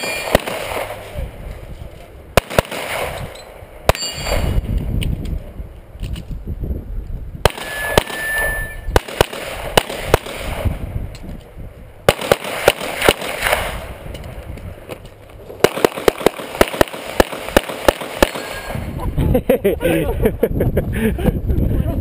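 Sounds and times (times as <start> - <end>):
steel target ringing: 0.0 - 0.4, 3.3 - 4.6, 7.5 - 9.0, 18.3 - 18.8
handgun shots: 15.6 - 18.8.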